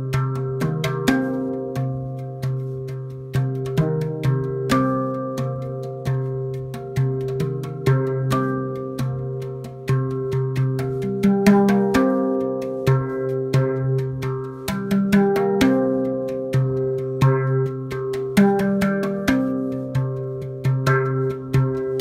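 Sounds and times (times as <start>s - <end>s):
steel handpan played by hand: 0.0s - 22.0s.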